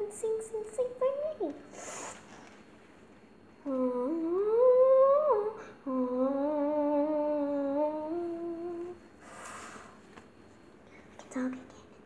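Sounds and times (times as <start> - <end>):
girl humming: 3.6 - 10.0.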